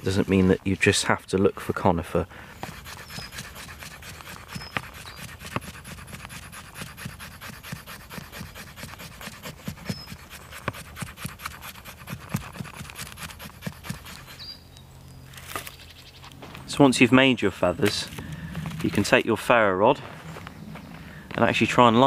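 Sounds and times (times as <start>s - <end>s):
knife scraping wood stick: 0.0s - 1.0s, 2.6s - 14.6s.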